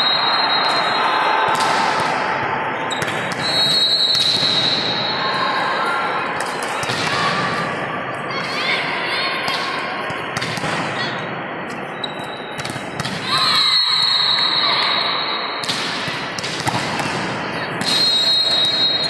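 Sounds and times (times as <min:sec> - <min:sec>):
din of busy sports hall: 0:00.0 - 0:19.0.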